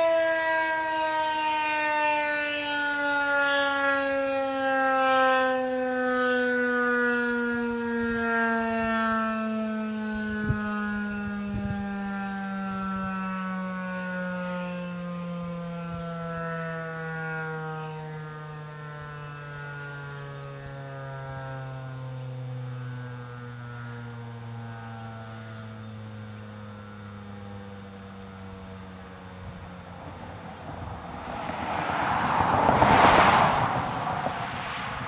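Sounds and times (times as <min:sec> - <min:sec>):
warning siren winding down: 0:00.0 - 0:35.0.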